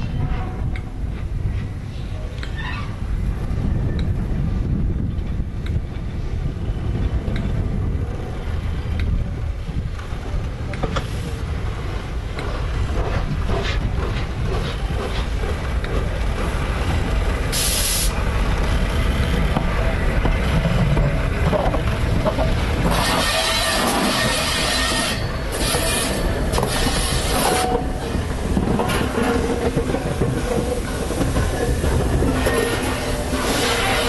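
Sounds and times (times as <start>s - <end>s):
steam locomotive rumbling: 0.0s - 34.0s
steam hiss: 17.4s - 18.3s, 23.0s - 27.7s.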